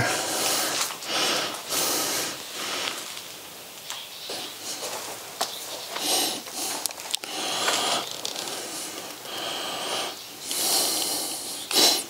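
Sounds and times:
person breathing: 0:00.0 - 0:03.2, 0:06.0 - 0:12.0.

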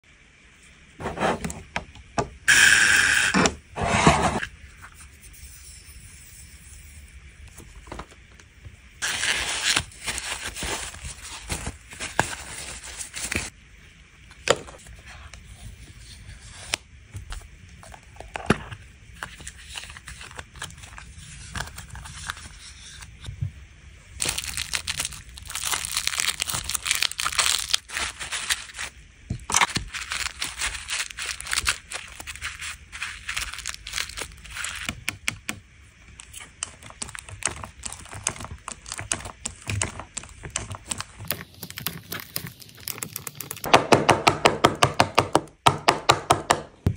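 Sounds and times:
cling wrap crinkling: 0:09.0 - 0:13.5, 0:24.2 - 0:34.9, 0:36.1 - 0:43.7.

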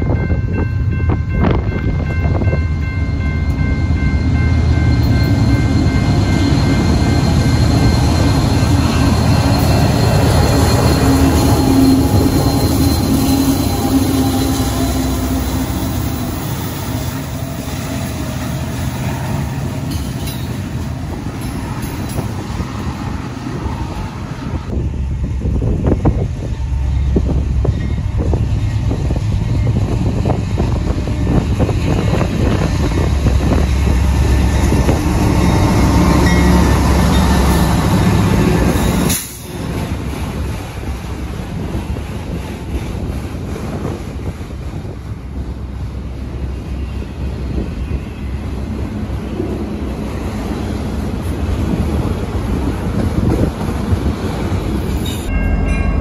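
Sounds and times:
locomotive engine rumble: 0:00.0 - 0:56.0
train cars rolling on rails: 0:00.0 - 0:56.0
steady high tones: 0:00.4 - 0:24.7, 0:55.0 - 0:56.0.

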